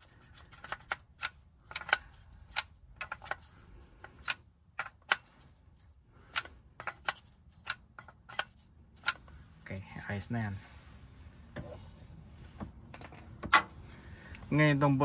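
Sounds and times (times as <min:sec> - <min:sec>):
plastic tool clicking in hub: 0:00.4 - 0:03.4.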